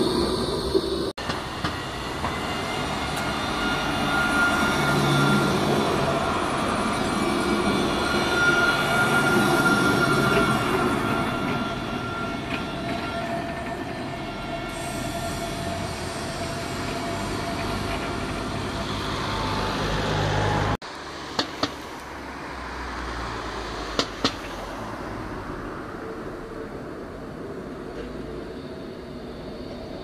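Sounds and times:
steel wheels rumbling on rail: 0.0 - 22.0
tram passing: 0.0 - 30.0.

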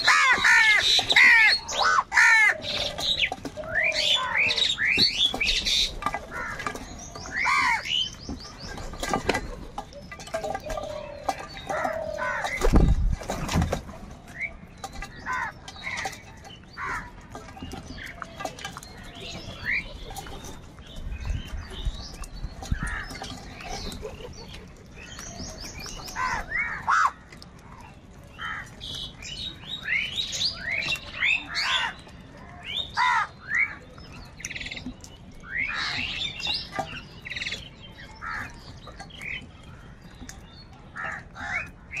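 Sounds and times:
crows cawing: 0.0 - 4.9, 6.2 - 6.7, 7.3 - 8.0, 16.8 - 17.2, 26.1 - 27.2, 28.4 - 28.7, 33.0 - 33.4, 41.0 - 41.7.

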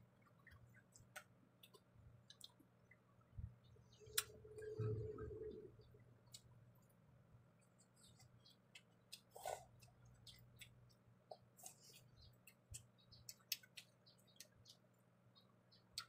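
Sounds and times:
low steady hum: 0.0 - 16.0
person chewing food: 7.6 - 14.8.

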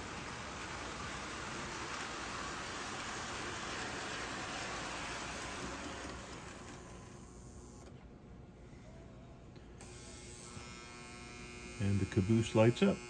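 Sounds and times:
toy train rolling on track: 0.0 - 7.3.

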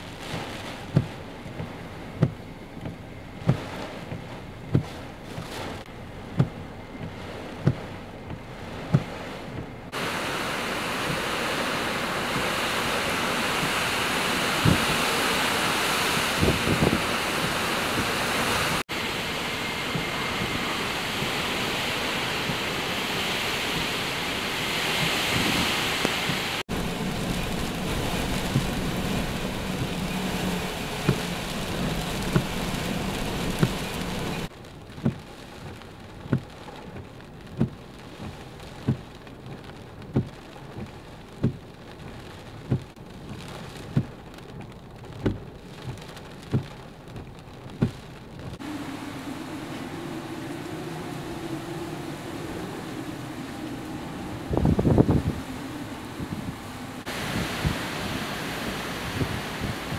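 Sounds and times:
heavy rain: 0.0 - 59.9
storm wind gusting: 5.4 - 34.5, 48.6 - 59.9.

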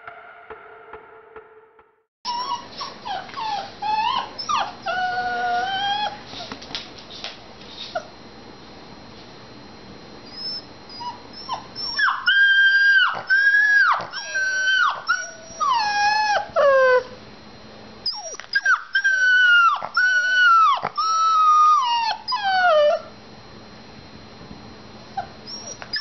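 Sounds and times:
puppy yipping: 2.3 - 6.2, 10.3 - 17.1, 18.1 - 23.1, 25.2 - 26.0
puppy howling: 2.3 - 6.5, 10.3 - 17.2, 18.1 - 23.1, 25.2 - 26.0.

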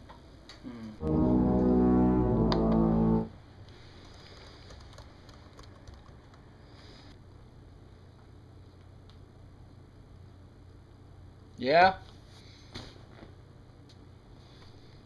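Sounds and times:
loud brass-like chord: 1.0 - 3.3
computer keyboard typing: 4.0 - 6.4.

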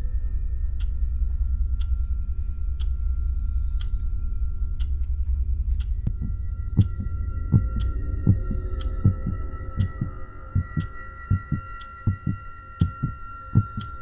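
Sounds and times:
faint high held tones: 0.0 - 14.0
low droning hum: 0.0 - 14.0
clock ticking: 5.7 - 14.0.

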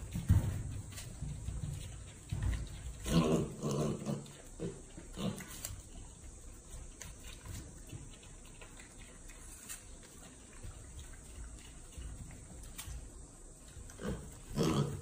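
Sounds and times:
piglet grunting: 2.9 - 5.7, 13.9 - 15.0.

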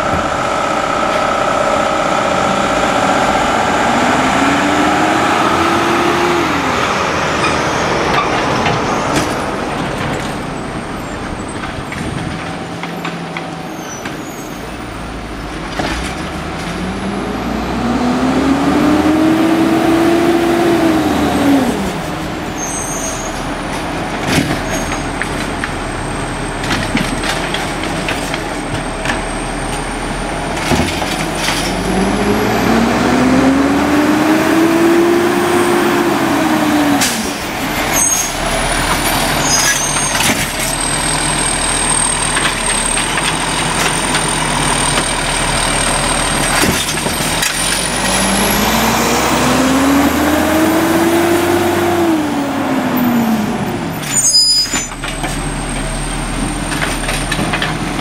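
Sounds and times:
hydraulic pump whine: 0.0 - 6.8
diesel engine revving: 0.0 - 13.3, 14.7 - 58.0.

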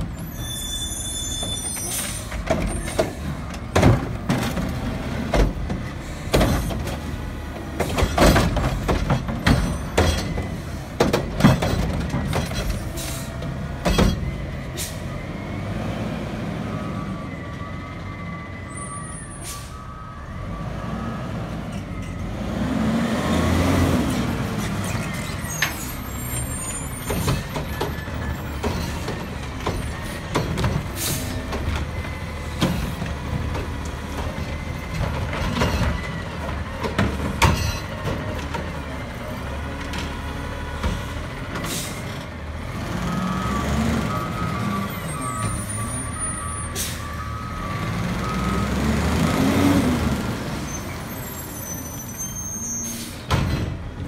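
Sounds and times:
diesel engine revving: 20.4 - 26.4, 28.0 - 52.0.

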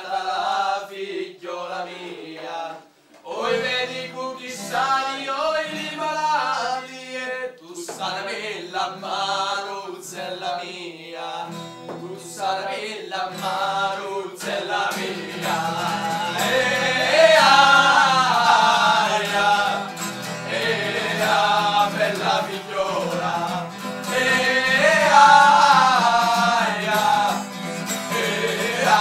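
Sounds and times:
acoustic guitar: 0.0 - 29.0
men singing: 0.0 - 29.0.

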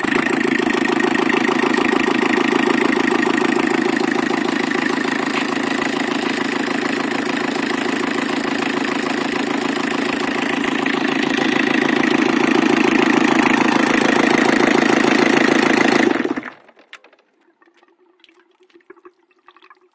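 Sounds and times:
marine diesel engine running: 0.0 - 17.6
faint ticks and drips: 16.9 - 19.9.

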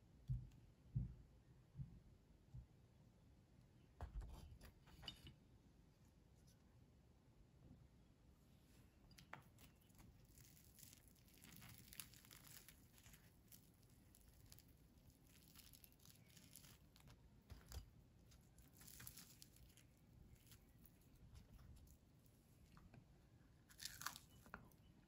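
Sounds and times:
pastry crackling and tearing: 9.1 - 25.0
crust snapping: 23.7 - 24.7.

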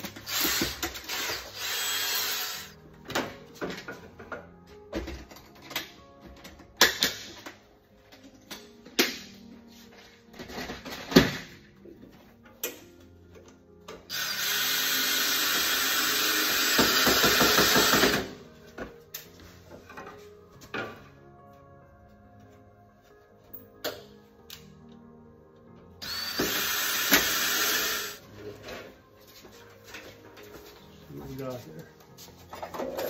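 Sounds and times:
cordless drill drilling wood: 0.3 - 2.8, 14.1 - 18.1, 26.0 - 28.2.

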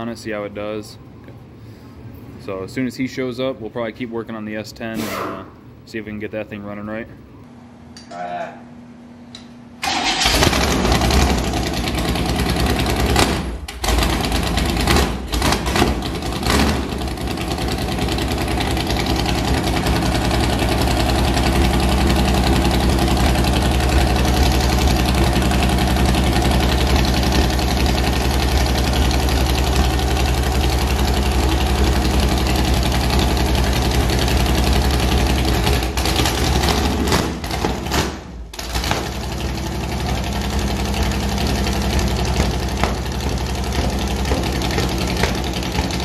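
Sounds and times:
car engine idling: 9.9 - 46.0.

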